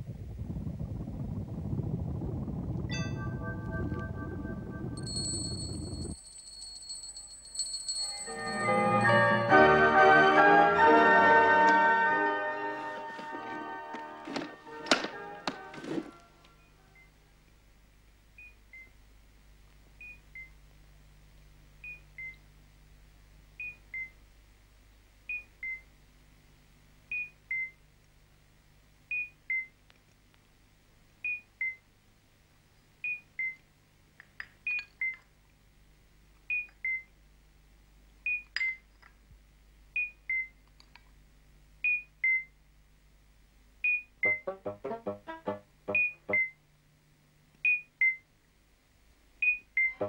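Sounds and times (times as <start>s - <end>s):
two-tone electronic beeps: 43.9s - 44.8s, 45.9s - 46.6s.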